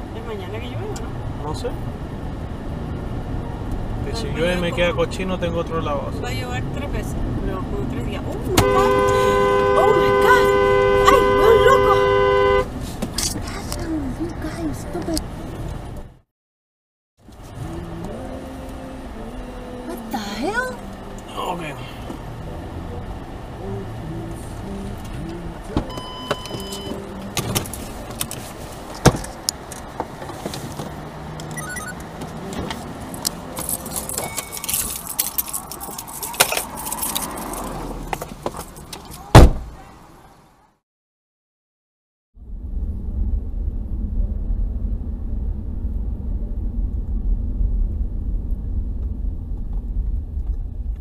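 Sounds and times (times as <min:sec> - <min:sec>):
car cabin road noise: 0:00.0 - 0:16.2, 0:17.2 - 0:40.7, 0:42.4 - 0:51.0
car cabin noise: 0:08.1 - 0:15.9, 0:24.7 - 0:40.0.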